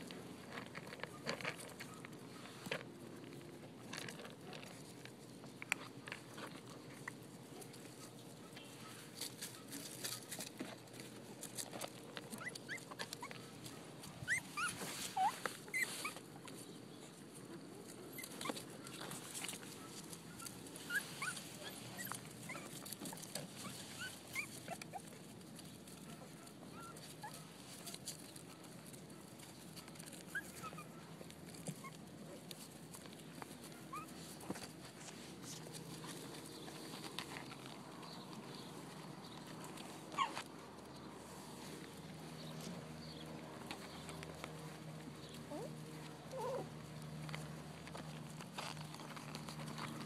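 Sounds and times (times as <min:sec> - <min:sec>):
small clicks and rustling: 0:00.0 - 0:16.7, 0:17.4 - 0:50.0
puppies squeaking and whimpering: 0:11.5 - 0:16.7, 0:17.4 - 0:25.3, 0:26.1 - 0:28.0, 0:29.7 - 0:32.1, 0:33.6 - 0:37.0, 0:40.0 - 0:40.5, 0:45.2 - 0:46.8.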